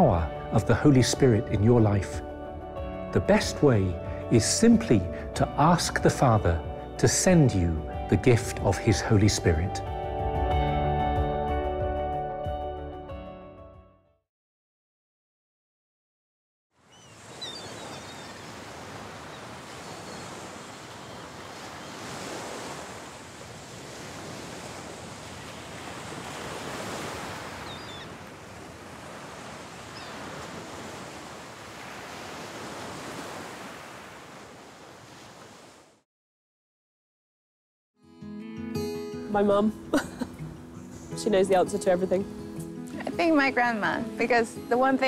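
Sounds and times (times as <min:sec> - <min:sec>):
sea waves washing onto beach: 0:17.1 - 0:36.0
faint gull calls: 0:27.5 - 0:28.2.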